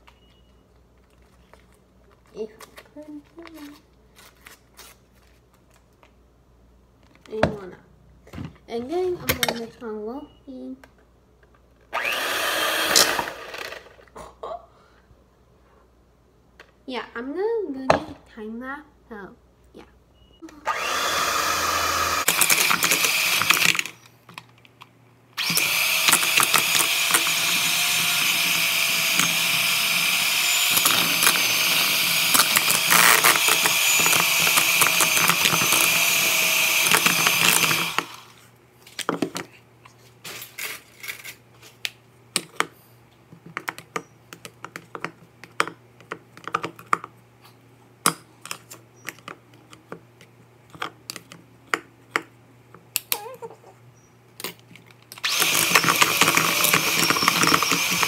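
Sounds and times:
electric hand mixer running: 12.0 - 13.9, 20.7 - 23.8, 25.4 - 38.4, 55.2 - 58.0.

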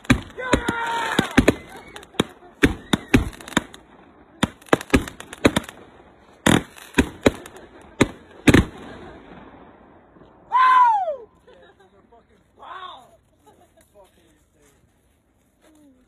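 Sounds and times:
fireworks bangs and cracks: 0.0 - 10.4.

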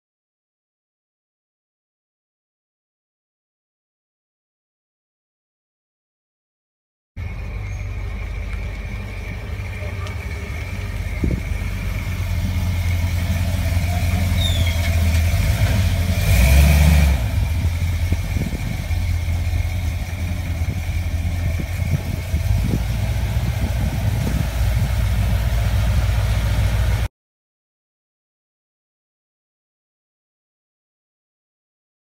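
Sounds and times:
engine exhaust rumbling: 7.2 - 27.1.

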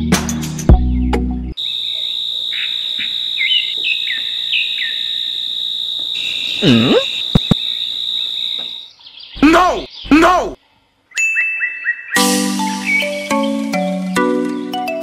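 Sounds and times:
bird chirps: 0.8 - 13.7
high-pitched insect trill: 1.6 - 8.9
swooping voice-like sound: 6.6 - 7.1
sharp clicks: 7.3 - 7.6.

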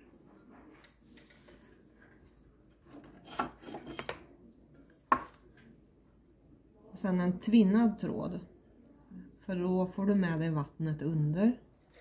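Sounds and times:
scrapes and knocks: 0.4 - 4.3.

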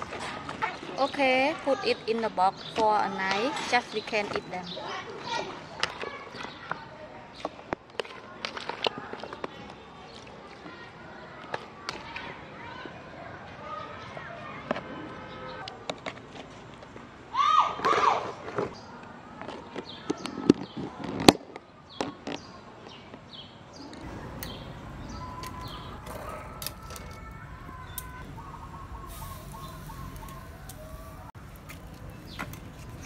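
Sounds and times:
birds chirping: 0.0 - 7.6, 23.3 - 33.0.

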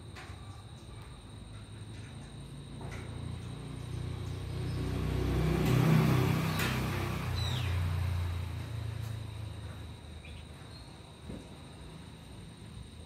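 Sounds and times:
vehicle passing by: 2.6 - 10.2.

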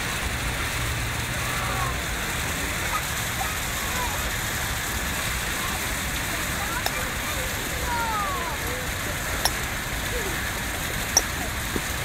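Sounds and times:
distant voices: 0.0 - 12.0
water and wind hiss: 0.0 - 12.0
faint short high calls: 11.1 - 11.6.

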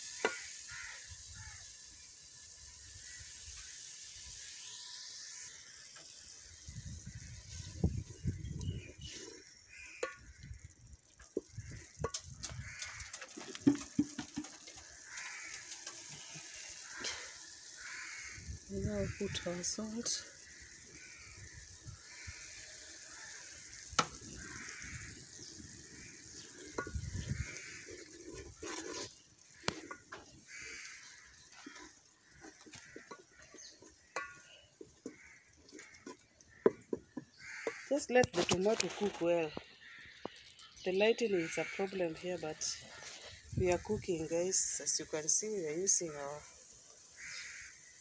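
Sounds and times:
wooden spoon scraping metal pot: 11.0 - 18.2, 23.3 - 40.6.

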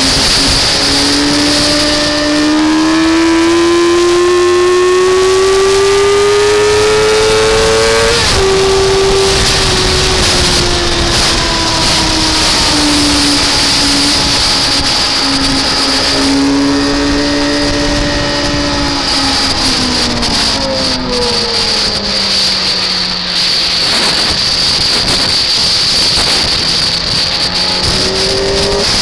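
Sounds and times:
car engine at high revs: 0.0 - 29.0.

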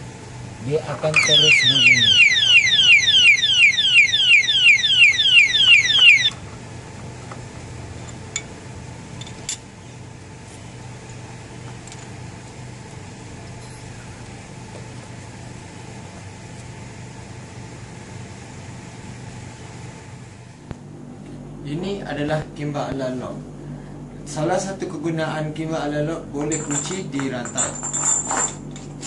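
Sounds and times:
alarm siren falling sweeps: 1.2 - 6.3.

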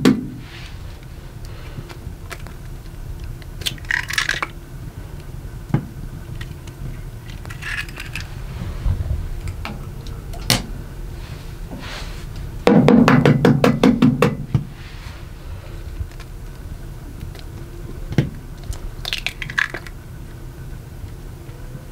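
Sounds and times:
hard objects knocking: 12.7 - 14.7.

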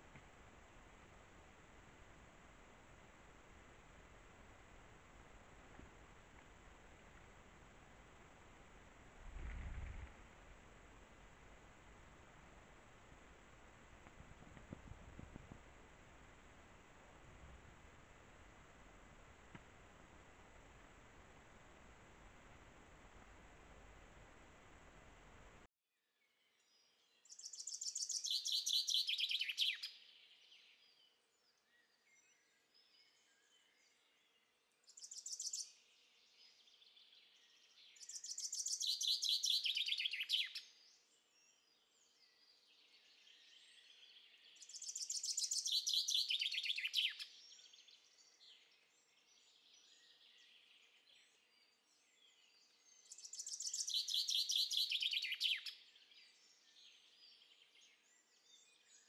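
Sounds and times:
songbird singing with trill: 26.2 - 59.0.

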